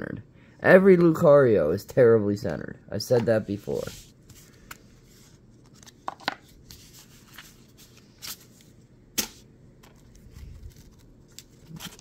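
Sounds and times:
cards rustling and sliding: 3.1s - 12.0s.

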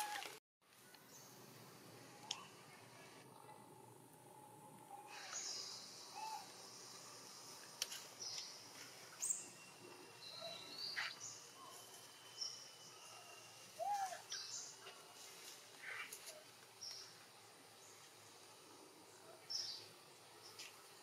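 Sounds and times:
thin steady high tone: 1.0s - 15.5s.

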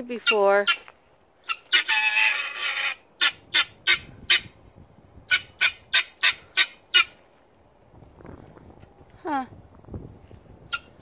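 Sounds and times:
guineafowl calling: 0.1s - 4.6s, 5.3s - 7.2s.

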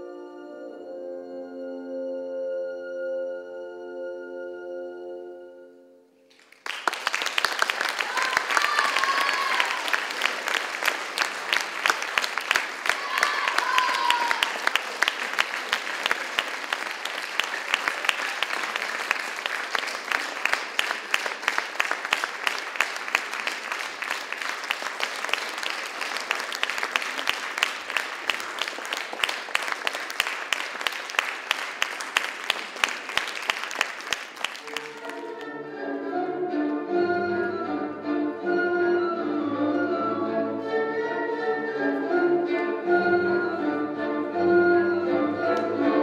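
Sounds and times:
audience clapping: 6.3s - 35.6s.

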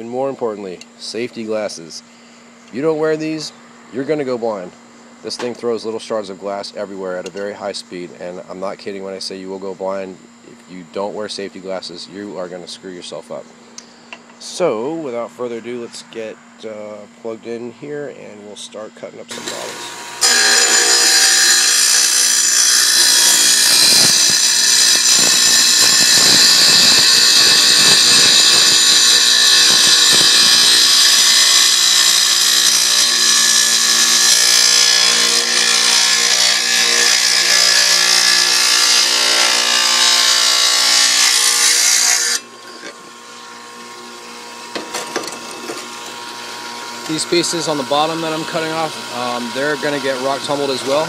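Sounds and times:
saw blade grinding through glass: 19.3s - 43.5s
saw motor whine: 19.3s - 51.0s.

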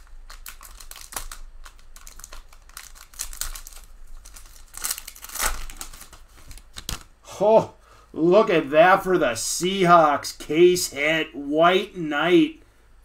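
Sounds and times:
trading cards sliding and rustling: 2.0s - 7.1s.

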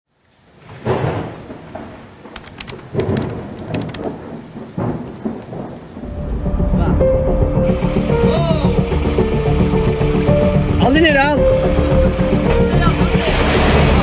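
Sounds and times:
steady rain: 0.1s - 14.0s
thunder crackles: 0.5s - 10.8s
thunder rumbling: 0.6s - 14.0s.

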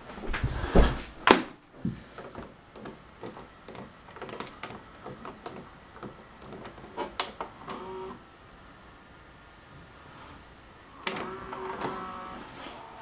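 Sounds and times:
light clicks and knocks: 1.8s - 7.5s.

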